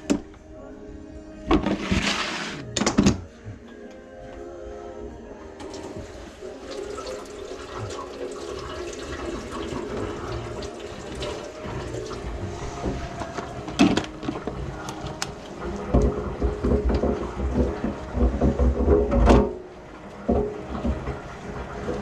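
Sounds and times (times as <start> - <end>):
water gurgling through drain pipes: 5.6 - 22.0.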